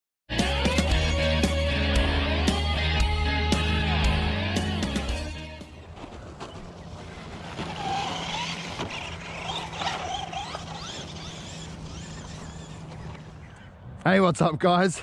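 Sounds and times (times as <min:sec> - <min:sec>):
remote-control car motor whine: 0:07.4 - 0:13.6.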